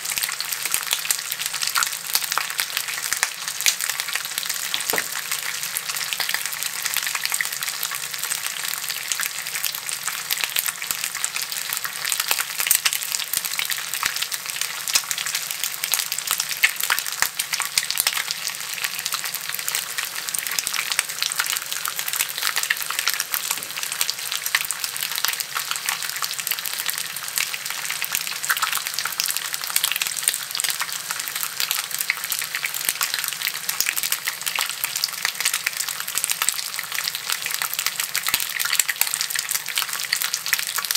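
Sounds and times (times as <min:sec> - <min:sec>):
bacon sizzling in a skillet: 0:00.0 - 0:40.9
popping and crackling fat: 0:00.1 - 0:06.5, 0:19.0 - 0:26.6.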